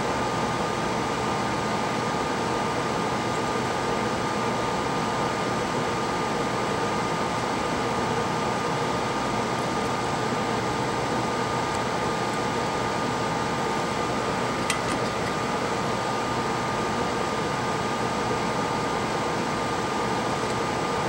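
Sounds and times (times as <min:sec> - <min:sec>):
electric fan whooshing: 0:00.0 - 0:21.0
small click: 0:14.7 - 0:15.4.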